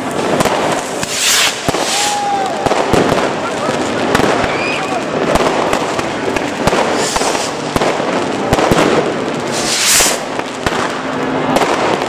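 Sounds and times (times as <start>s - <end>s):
firecrackers crackling: 0.0s - 12.0s
fireworks bangs: 0.0s - 12.0s
rocket hissing rush: 0.7s - 2.6s, 6.8s - 8.1s, 9.0s - 10.4s.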